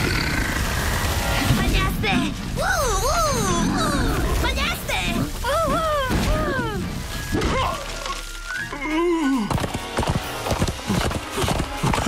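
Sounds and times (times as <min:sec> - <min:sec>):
galloping hoofbeats: 0:09.3 - 0:12.0.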